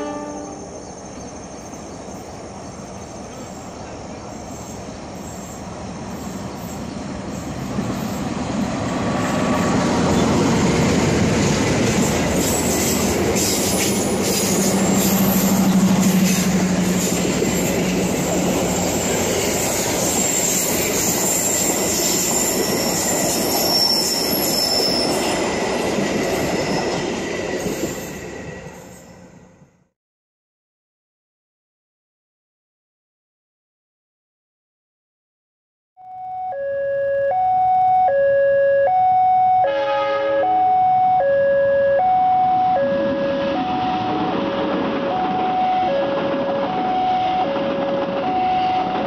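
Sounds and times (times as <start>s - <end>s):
train wheels squealing: 0.0s - 10.9s, 11.9s - 29.6s
passenger train rumble: 0.0s - 29.9s, 39.6s - 49.0s.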